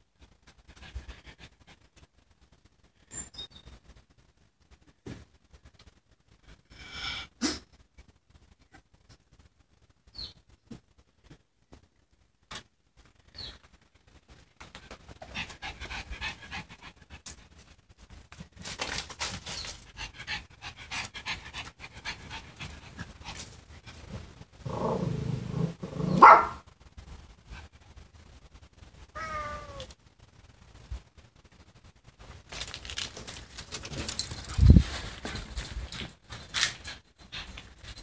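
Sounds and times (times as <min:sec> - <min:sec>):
dog panting: 0:15.2 - 0:17.4, 0:19.8 - 0:24.1
dog growling: 0:24.6 - 0:26.2.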